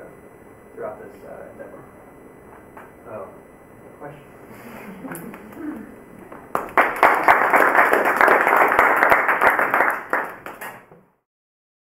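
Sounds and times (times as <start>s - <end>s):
audience applauding: 6.2s - 10.9s.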